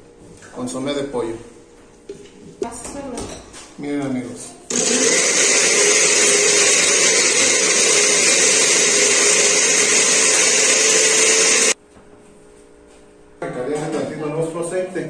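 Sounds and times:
blender motor running: 4.7 - 11.8.

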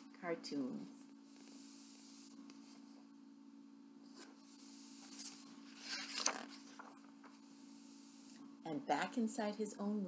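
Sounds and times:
book pages turning: 5.0 - 7.4.

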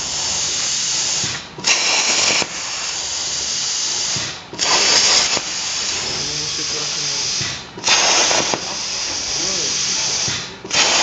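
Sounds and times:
compressed air hissing through torch: 0.0 - 11.0
plasma arc blast: 0.0 - 11.0.

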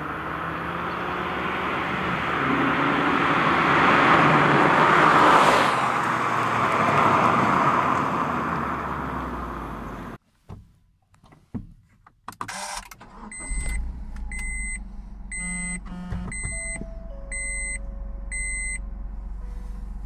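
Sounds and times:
car driving away: 0.0 - 10.2, 13.0 - 20.0
car engine rumble: 0.0 - 20.0
dashboard warning chime beeping: 13.2 - 18.9.

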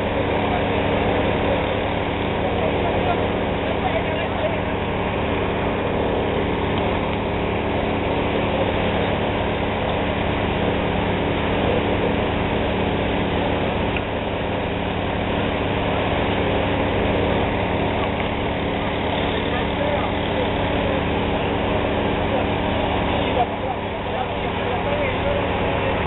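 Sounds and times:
pump engine running steadily: 0.0 - 26.0.

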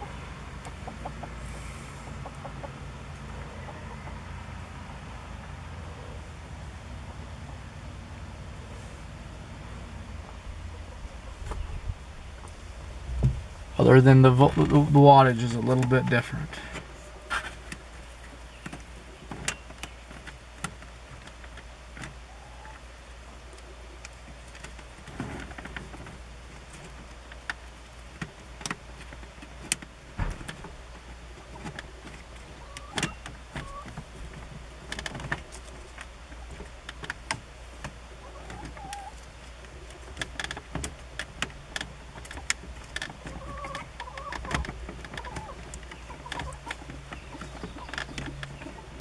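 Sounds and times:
steady low hum: 0.0 - 49.0.

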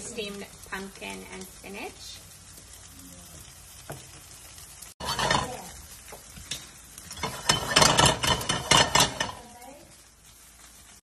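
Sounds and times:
wooden spoon stirring in a pan: 0.0 - 11.0
pans scraping and clattering: 5.0 - 5.7, 6.5 - 9.5.

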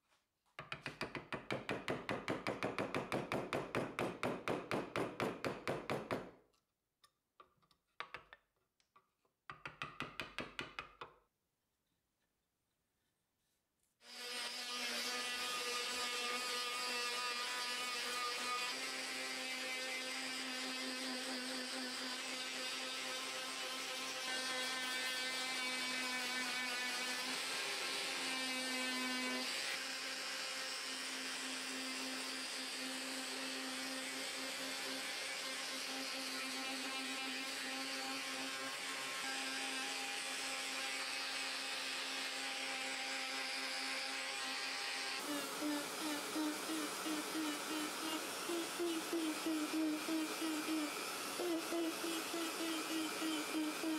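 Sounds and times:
electric sander on wood: 14.0 - 53.9.

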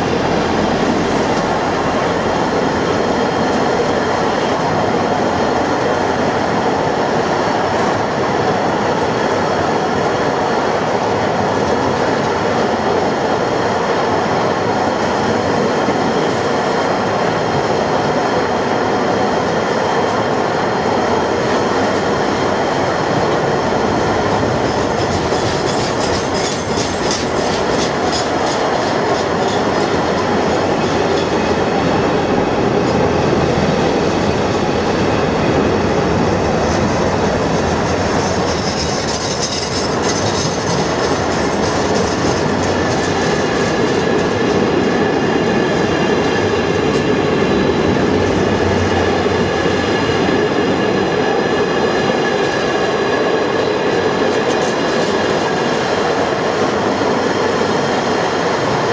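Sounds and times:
train wheels rumbling on rail: 0.0 - 58.9
wheels clicking over rail joints: 24.0 - 30.4, 37.4 - 44.7.

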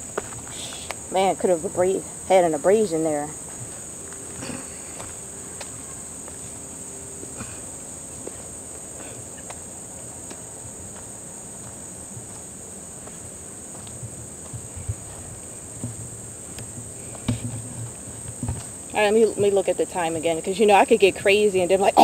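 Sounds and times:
crickets chirring: 0.0 - 22.0
soft low thumps: 11.6 - 19.7.

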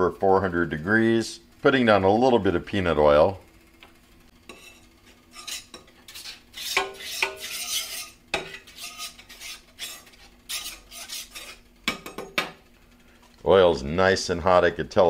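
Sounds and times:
spatula scraping griddle: 4.4 - 11.7.

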